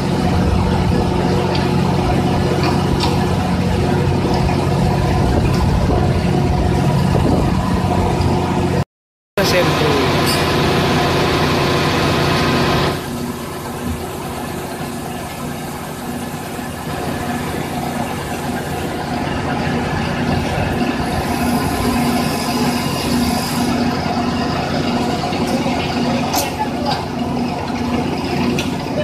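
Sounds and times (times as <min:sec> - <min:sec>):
pipe-threading machine motor hum: 0:09.4 - 0:29.0.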